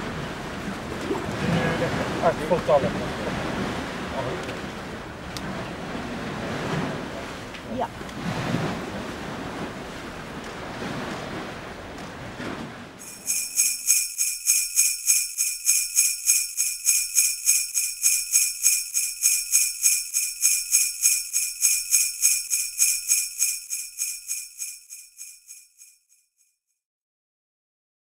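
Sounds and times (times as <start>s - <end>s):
sleigh bells jingling: 13.0s - 26.0s.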